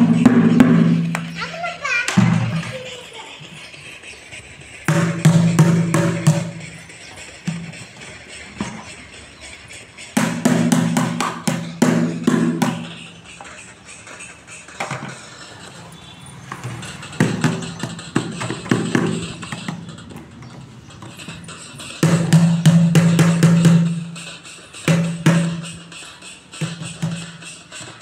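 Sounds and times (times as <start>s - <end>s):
plastic bucket drumming: 4.8s - 9.0s, 10.2s - 13.0s, 14.8s - 15.7s, 16.5s - 24.2s.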